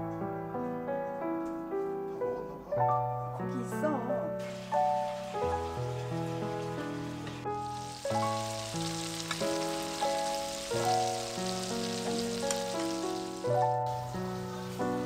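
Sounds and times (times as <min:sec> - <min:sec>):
scallops sizzling in butter: 0:04.4 - 0:15.0.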